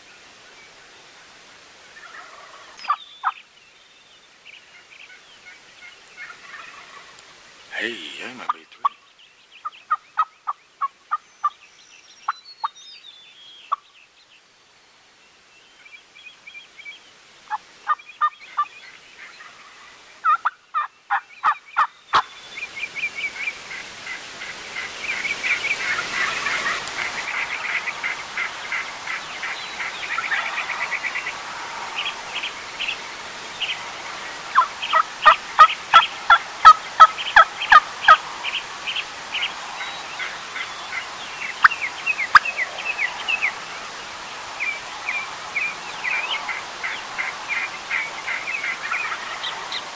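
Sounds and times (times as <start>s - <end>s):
steady hiss: 0.0s - 12.2s, 12.8s - 49.9s
turkey calling: 2.0s - 3.4s, 6.2s - 7.1s, 19.4s - 22.2s, 24.8s - 31.4s, 34.5s - 38.2s, 40.2s - 42.5s, 46.0s - 49.8s.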